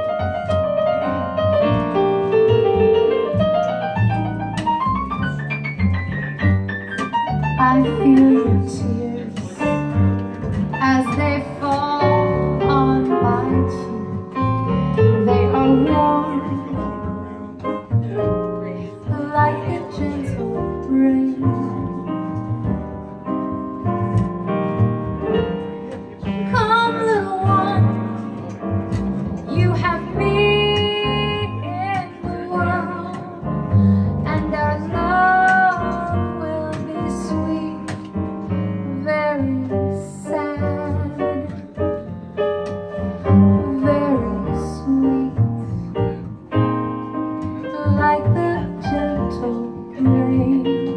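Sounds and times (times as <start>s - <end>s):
upright double bass: 0.0s - 50.9s
woman singing a jazz ballad: 7.4s - 10.1s, 10.8s - 17.8s, 18.7s - 22.4s, 26.2s - 28.4s, 29.5s - 42.2s, 43.3s - 46.3s, 47.4s - 50.9s.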